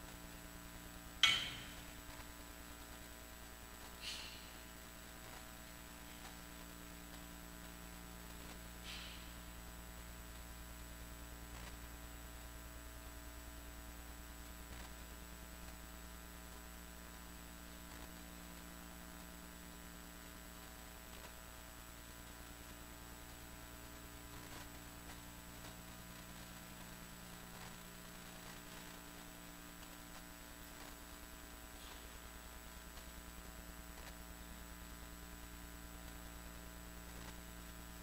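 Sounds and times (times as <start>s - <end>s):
faint mains hum: 0.0s - 38.0s
thin high whine: 1.2s - 2.3s.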